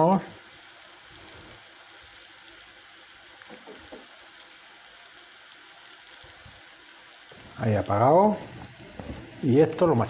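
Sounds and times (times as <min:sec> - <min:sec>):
leeks sizzling in pan: 0:00.0 - 0:10.0
soft small knocks: 0:03.4 - 0:04.1.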